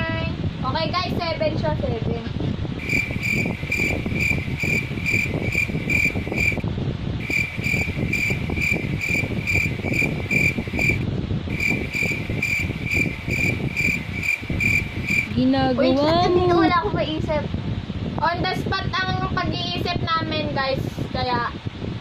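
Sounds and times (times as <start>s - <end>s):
steady rumbling noise: 0.0s - 22.0s
cricket chirping: 2.8s - 6.6s, 7.2s - 15.3s.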